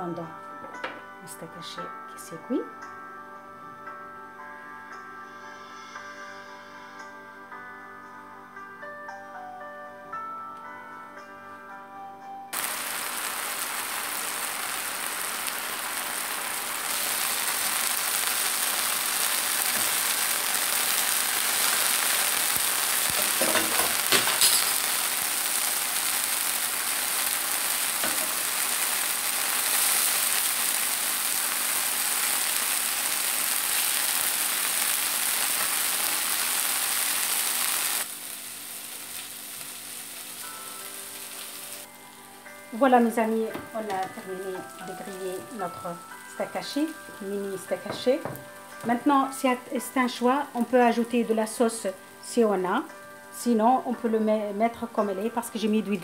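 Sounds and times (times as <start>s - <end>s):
meat patties sizzling in a pan: 12.6s - 41.9s
metal turner clinking on pan: 23.1s - 24.8s.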